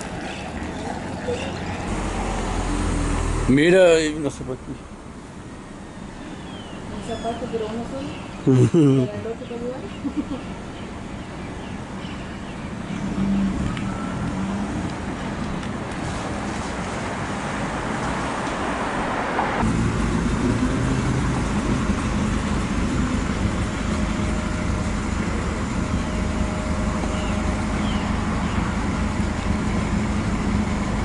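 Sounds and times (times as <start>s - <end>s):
city street traffic: 0.0s - 31.0s
car engine running: 19.6s - 31.0s.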